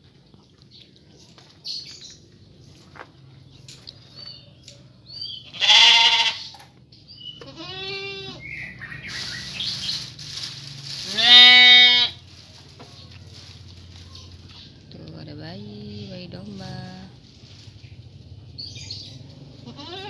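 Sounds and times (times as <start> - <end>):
sheep bleating: 5.5 - 6.5, 7.4 - 8.5, 11.1 - 12.2, 19.6 - 20.0
rustling from feeding: 7.5 - 15.0, 15.8 - 18.6.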